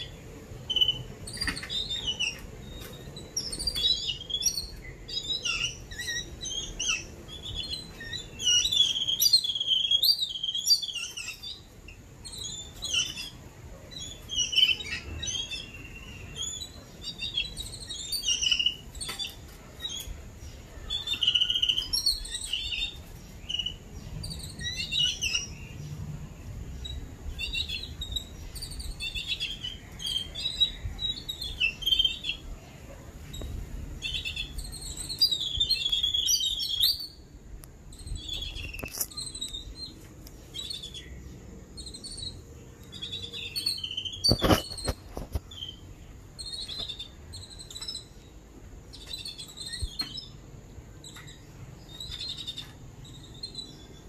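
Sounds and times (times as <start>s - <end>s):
babblers chirping and calling: 0.0s - 37.2s, 37.9s - 50.4s.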